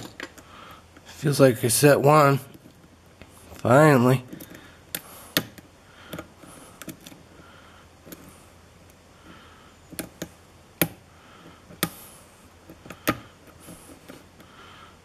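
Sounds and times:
lock pick scraping and clicking: 4.3s - 7.3s, 12.6s - 14.5s.

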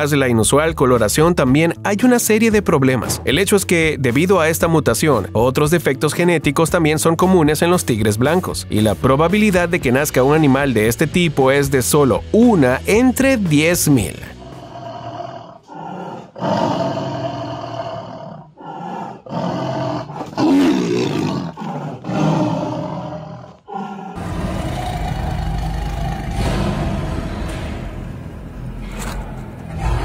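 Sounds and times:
tiger snarling and growling: 14.3s - 27.9s, 28.8s - 30.0s.

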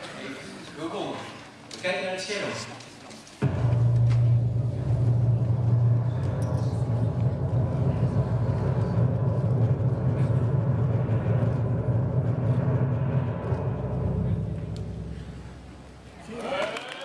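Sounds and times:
engine-like rumble over loudspeakers: 3.4s - 16.2s.

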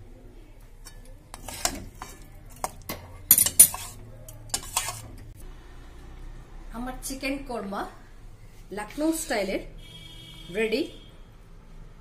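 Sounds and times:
metal spoon scraping a pot: 0.8s - 5.4s.

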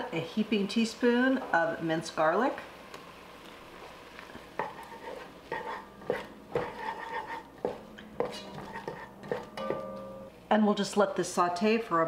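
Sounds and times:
wooden spoon scraping a pot: 3.8s - 9.5s.

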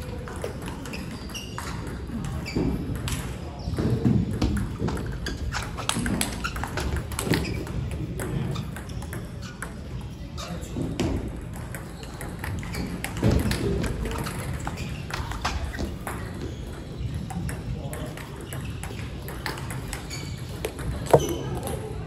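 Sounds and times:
ball bouncing on table: 20.6s - 21.9s
table tennis ball hits: 20.6s - 21.9s.

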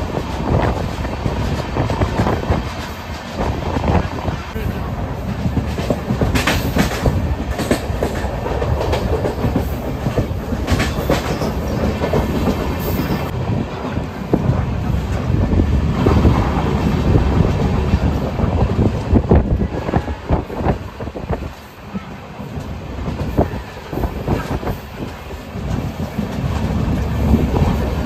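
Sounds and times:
train rumble: 0.0s - 28.0s
wheels knocking on track: 5.3s - 13.3s.

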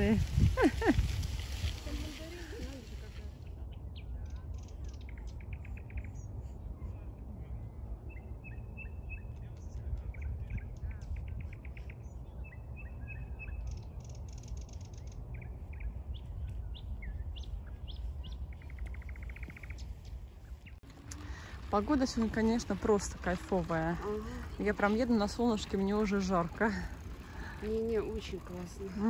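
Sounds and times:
steady low rumble: 0.0s - 29.0s
nightingale singing: 8.0s - 20.8s.

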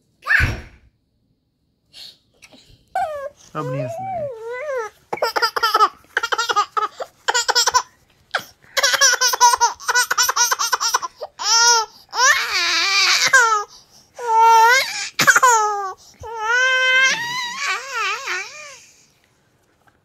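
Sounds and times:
baby laughing: 3.6s - 13.6s, 14.5s - 18.8s.

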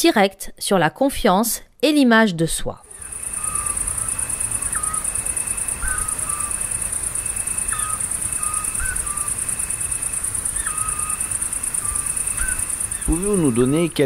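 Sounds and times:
fast-pulsing insect trill: 2.9s - 14.0s
whistled bird chirps: 2.9s - 14.0s.

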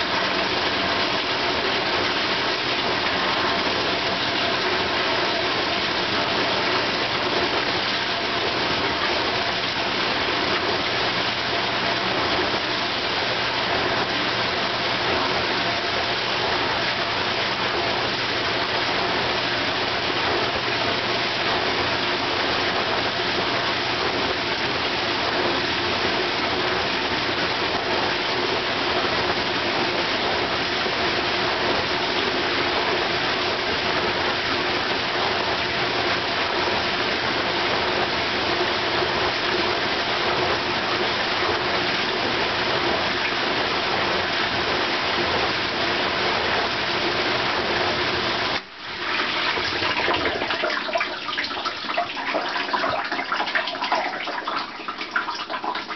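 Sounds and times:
dishwasher motor hum: 0.0s - 55.9s
water splashing and trickling: 0.0s - 55.9s
dishwasher water spraying: 40.2s - 55.9s.

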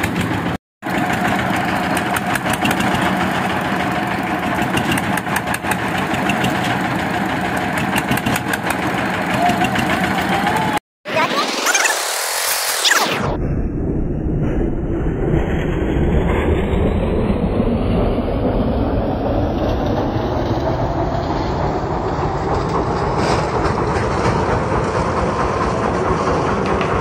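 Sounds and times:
concrete mixer rumbling: 0.0s - 10.8s.

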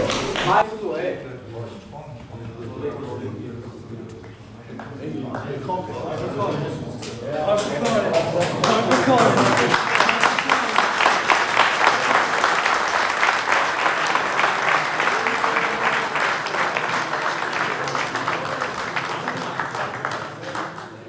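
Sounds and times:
crowd applauding: 0.0s - 0.6s, 7.3s - 21.0s.

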